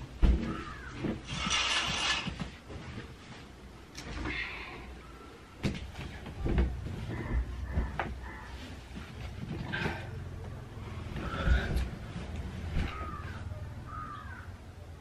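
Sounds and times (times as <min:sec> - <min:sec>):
cloth rustling and knocks: 0:00.0 - 0:03.6, 0:05.6 - 0:09.9.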